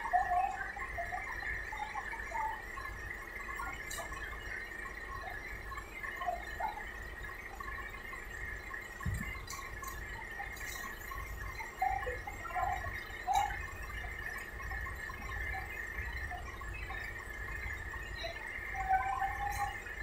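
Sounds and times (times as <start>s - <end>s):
high-pitched hum: 0.0s - 20.0s
faint knocks and clicks: 9.0s - 10.0s.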